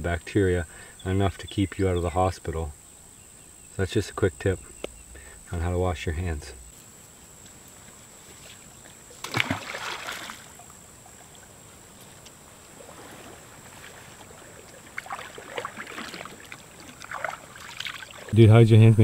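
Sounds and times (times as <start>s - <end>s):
water splashing: 8.4s - 11.7s, 12.5s - 18.4s.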